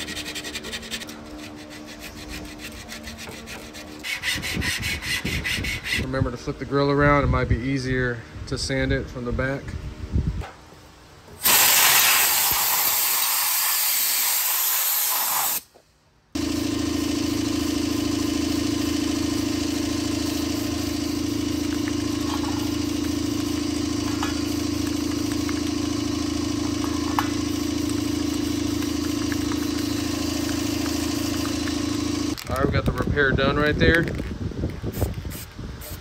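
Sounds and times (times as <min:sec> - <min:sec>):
sandblasting gun hissing: 0:11.4 - 0:15.7, 0:17.8 - 0:25.3
steady machine hum: 0:16.4 - 0:32.4.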